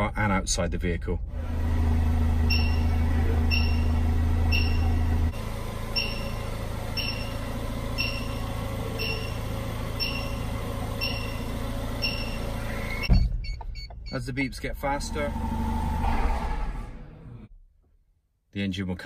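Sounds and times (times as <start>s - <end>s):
car engine idling: 0.0s - 17.6s
loud low hum: 0.0s - 17.9s
car alarm beeping: 2.3s - 14.5s.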